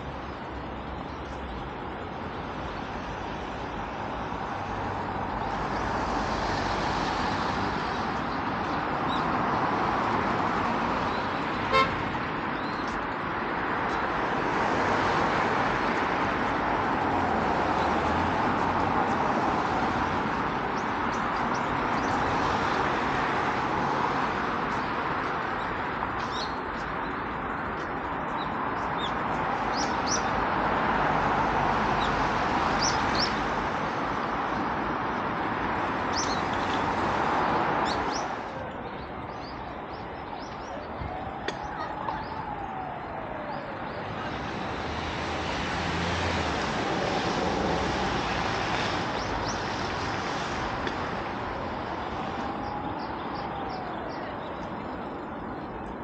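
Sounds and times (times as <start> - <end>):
road traffic passing: 0.0 - 56.0
car horn toot: 11.7 - 12.0
birds chirping: 20.2 - 30.6, 31.9 - 35.2, 35.8 - 46.4.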